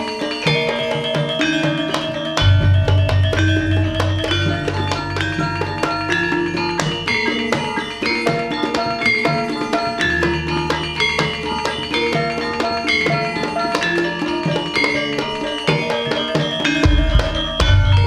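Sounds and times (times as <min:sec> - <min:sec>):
hand drums: 0:00.0 - 0:18.0
metallophones playing ringing notes: 0:00.0 - 0:18.0.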